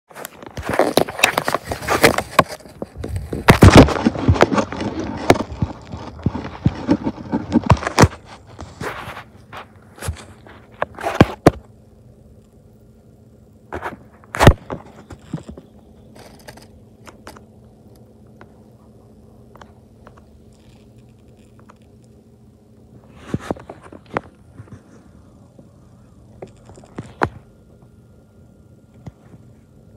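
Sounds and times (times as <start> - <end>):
handling scraping and clicking: 0.1 - 11.6, 13.7 - 22.2, 23.1 - 25.7, 26.4 - 27.4
faint low hum: 0.1 - 29.9.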